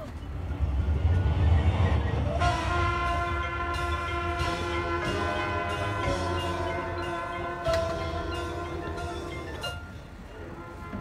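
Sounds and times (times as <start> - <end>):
low rumble: 0.0 - 9.2
brass sustained chord: 0.5 - 11.0.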